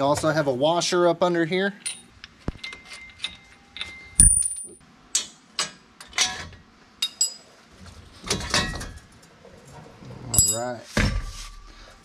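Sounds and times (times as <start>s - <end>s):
metal parts clanking and scraping: 1.8s - 7.5s
sharp ringing metal clink: 3.0s - 4.8s.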